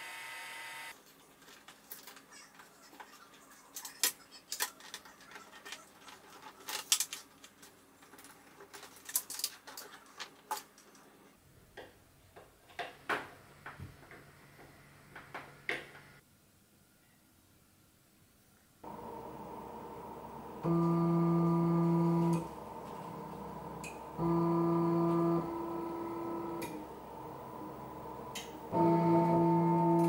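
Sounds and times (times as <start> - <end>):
wires and plastic parts clicking: 3.8 - 11.1
faint steady hum: 18.4 - 30.0.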